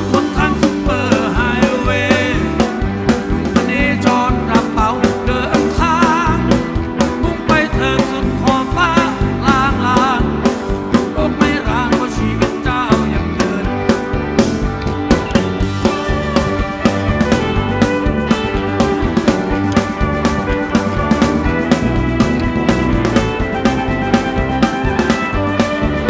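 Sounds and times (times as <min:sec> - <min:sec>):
drum and bass beat: 0:00.0 - 0:26.0
electric guitars: 0:00.0 - 0:26.0
live rock band playing: 0:00.0 - 0:26.0.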